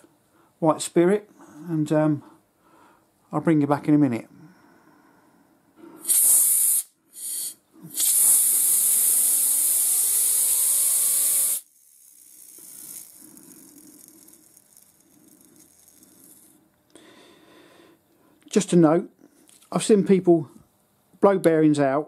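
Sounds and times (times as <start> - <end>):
compressed air hissing: 5.9 - 16.5
faint bearing whir: 7.8 - 16.8.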